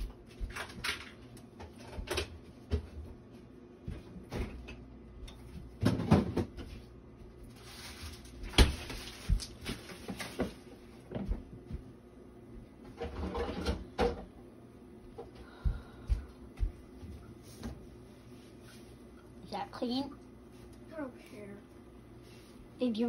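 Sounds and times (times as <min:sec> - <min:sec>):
kitchen items knocking and clattering: 0:05.4 - 0:06.8, 0:12.8 - 0:14.4.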